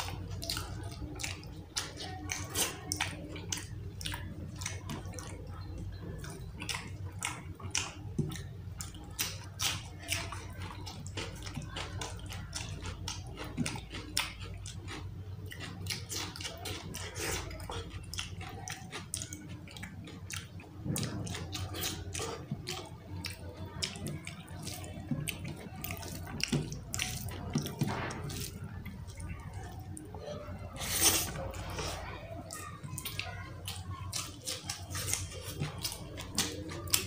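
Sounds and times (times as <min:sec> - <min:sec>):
mouth smacking and chewing: 0:00.0 - 0:37.0.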